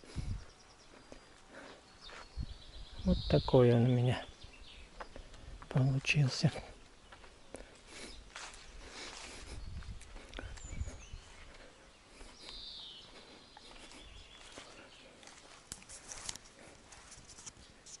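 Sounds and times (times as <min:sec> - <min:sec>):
bird chirp: 0:00.0 - 0:15.6
footsteps: 0:07.1 - 0:17.6
camera handling rustle: 0:15.7 - 0:18.0.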